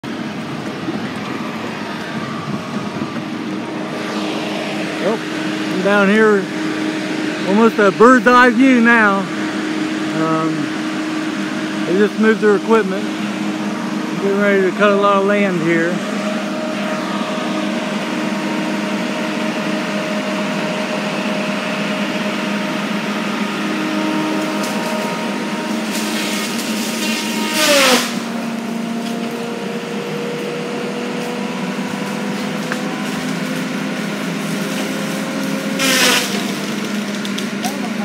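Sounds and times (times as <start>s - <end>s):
rushing noise: 0.0s - 19.0s
engine droning hum: 0.0s - 38.0s.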